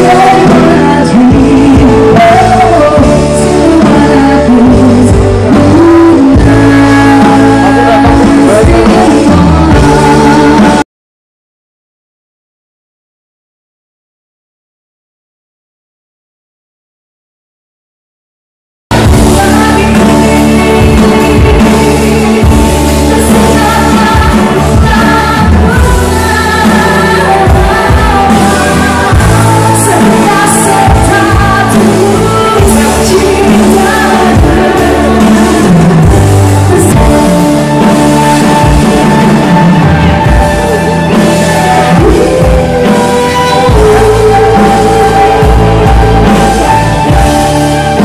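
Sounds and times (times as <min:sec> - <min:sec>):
drum kit steady beat: 0:00.0 - 0:10.8, 0:18.9 - 0:48.0
electric guitar: 0:00.0 - 0:10.8, 0:18.9 - 0:48.0
woman singing into microphone: 0:00.0 - 0:10.8, 0:19.0 - 0:48.0
electronic keyboards: 0:18.9 - 0:48.0.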